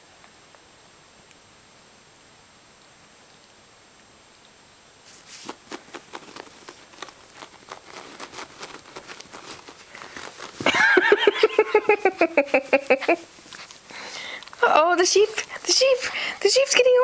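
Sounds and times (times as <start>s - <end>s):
soft clicks and rustles: 2.8s - 17.0s.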